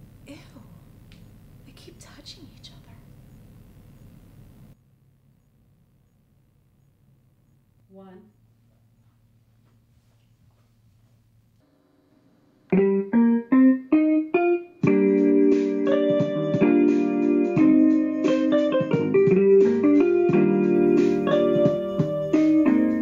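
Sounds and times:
tune with held chords: 0:12.6 - 0:23.0.

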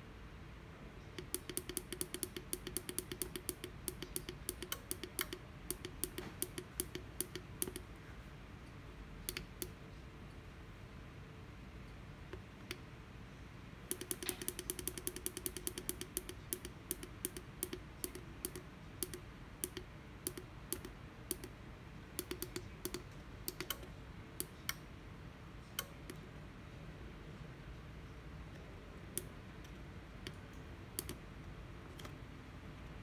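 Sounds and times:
push buttons clicking: 0:01.2 - 0:07.9, 0:13.9 - 0:21.5, 0:22.2 - 0:24.8.

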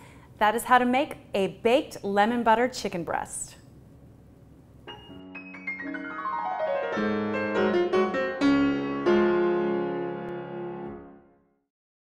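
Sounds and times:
piano jingle: 0:04.9 - 0:11.3.

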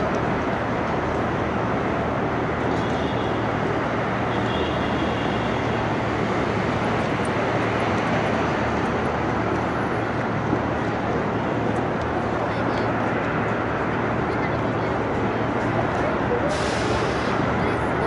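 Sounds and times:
traffic rumble: 0:00.0 - 0:18.0
trains rumbling: 0:05.8 - 0:18.0.

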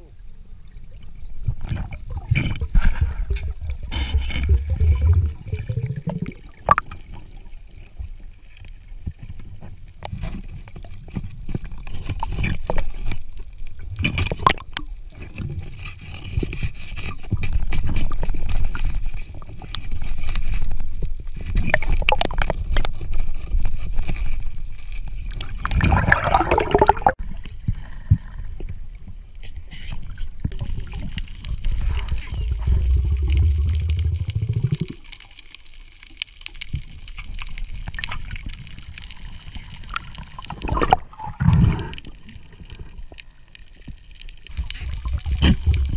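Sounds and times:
water sloshing and gurgling: 0:00.0 - 0:45.9
underwater clicks and knocks: 0:14.0 - 0:20.6, 0:30.4 - 0:35.2
rush of noise: 0:31.9 - 0:35.0.

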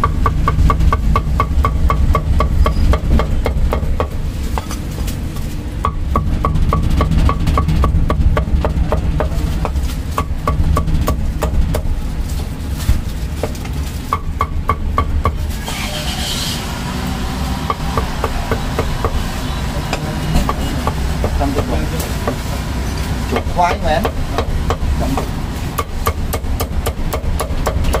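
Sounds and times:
low background rumble: 0:00.0 - 0:28.0
cleaver chopping on wooden block: 0:23.4 - 0:28.0.

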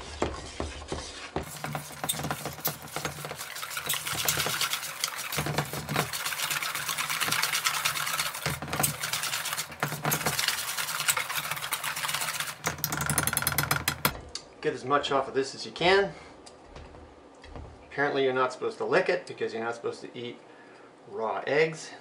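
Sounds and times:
whisk beating batter: 0:00.1 - 0:14.2.

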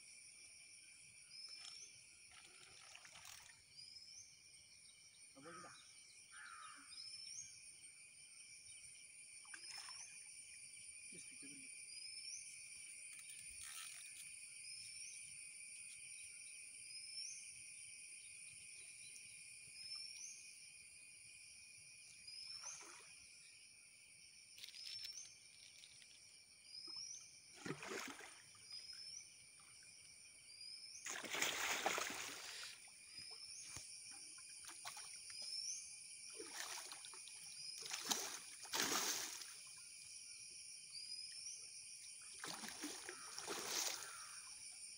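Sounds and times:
high insect drone: 0:00.0 - 0:44.9
fish splashing in water: 0:27.6 - 0:28.6, 0:31.0 - 0:32.7, 0:36.3 - 0:39.5, 0:42.4 - 0:44.4.

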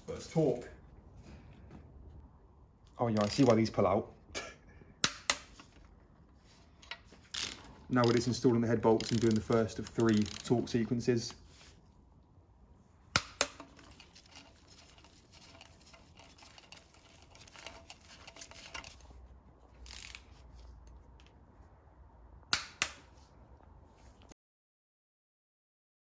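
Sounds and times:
torque wrench clicks: 0:07.3 - 0:08.3, 0:09.0 - 0:10.5, 0:19.8 - 0:20.2
ratchet ticking: 0:09.0 - 0:10.5.

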